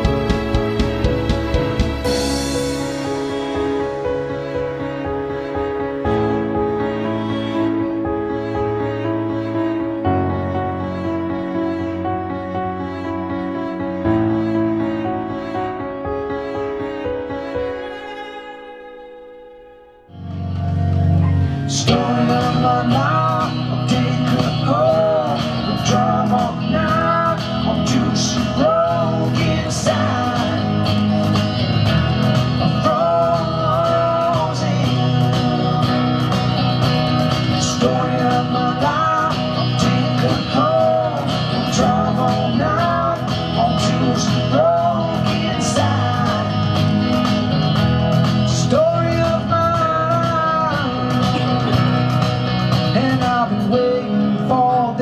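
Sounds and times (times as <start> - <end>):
country-rock electric guitar: 0.0 - 8.1, 20.1 - 55.0
man singing into a microphone: 21.4 - 47.6, 48.3 - 55.0.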